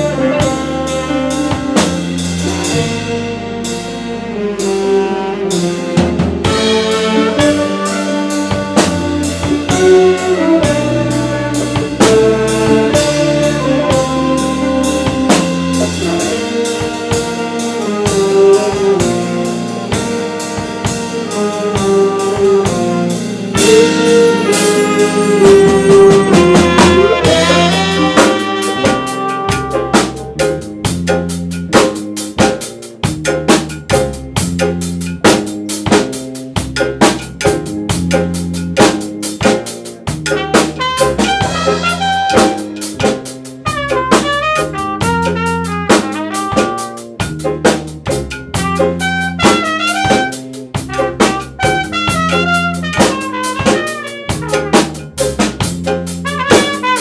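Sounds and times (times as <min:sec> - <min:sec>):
trumpet: 0:00.0 - 0:30.7, 0:40.2 - 0:47.3, 0:48.5 - 0:55.4, 0:56.1 - 0:57.0
saxophones: 0:00.0 - 0:31.9, 0:40.0 - 0:47.3, 0:48.3 - 0:57.0
electric guitars: 0:00.0 - 0:33.2
drum kit beat: 0:00.0 - 0:57.0
keyboard: 0:00.0 - 0:57.0.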